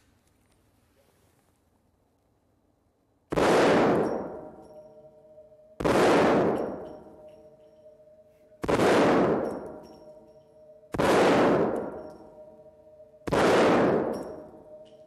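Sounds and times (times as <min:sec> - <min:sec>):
pistol shots echoing indoors: 0:03.3 - 0:15.0.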